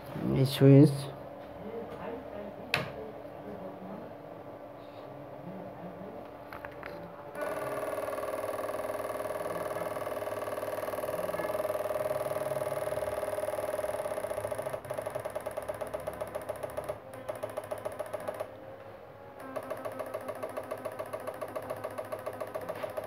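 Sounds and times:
transformer buzzing: 7.3s - 23.0s.

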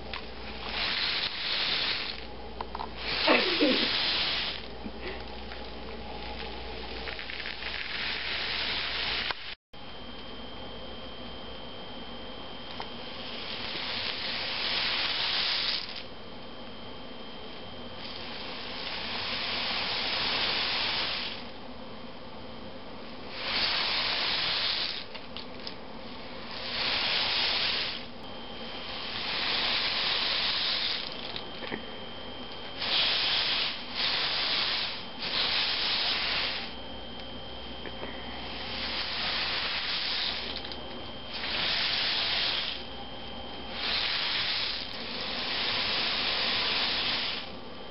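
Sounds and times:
rain stick hissing: 0.6s - 2.3s, 3.0s - 9.6s, 13.2s - 16.0s, 23.3s - 25.2s, 26.5s - 28.1s, 28.9s - 31.4s, 32.8s - 36.8s, 38.6s - 42.8s, 43.7s - 47.5s.

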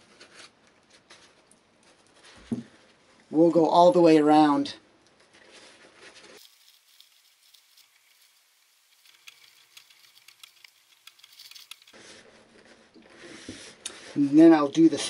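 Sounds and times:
needle and thread through fabric: 5.1s - 14.3s.

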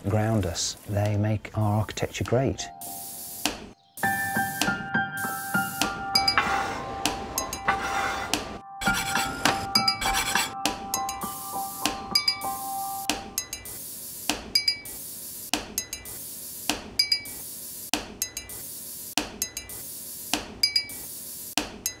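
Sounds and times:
held music notes: 4.0s - 13.5s
bright glassy clinks: 10.9s - 13.8s.

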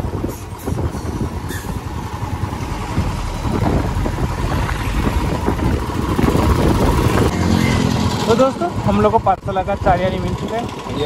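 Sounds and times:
wind rush on microphone: 0.0s - 7.4s
motorcycle engine running: 0.1s - 11.0s.

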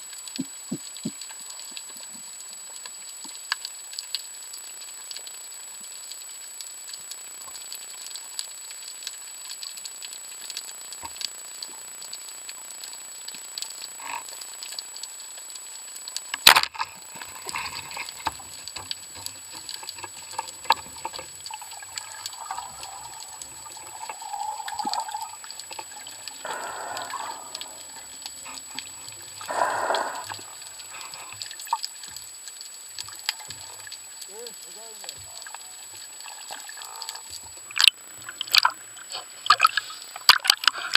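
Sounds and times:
underwater crackle of clicks: 0.1s - 40.9s
rushing bubbling water: 16.2s - 40.9s.

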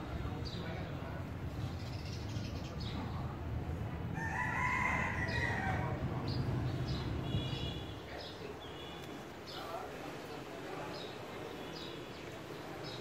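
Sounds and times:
rooster crowing: 4.2s - 6.0s.

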